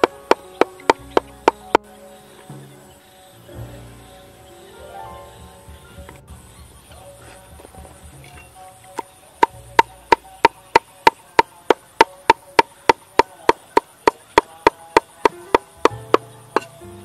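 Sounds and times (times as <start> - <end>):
cleaver chopping on wooden board: 0.0 - 1.8, 9.4 - 16.8.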